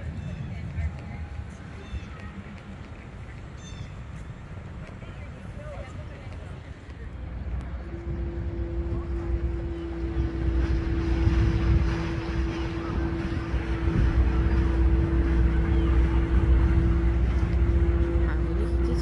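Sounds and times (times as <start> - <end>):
low engine rumble: 0.0 - 19.0
boat horn blast: 7.6 - 19.0.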